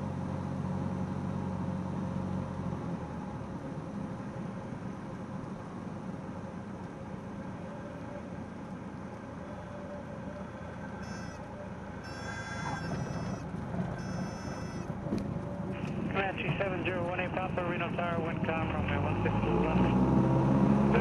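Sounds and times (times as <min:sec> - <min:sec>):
airplane engine and propeller: 0:00.0 - 0:21.0
high-pitched tone: 0:14.0 - 0:14.9.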